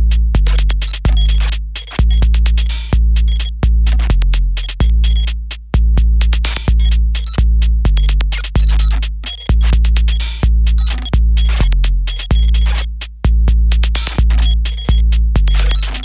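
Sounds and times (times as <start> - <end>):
deep bass kick: 0.0 - 16.0
short high bleeps: 14.0 - 16.0.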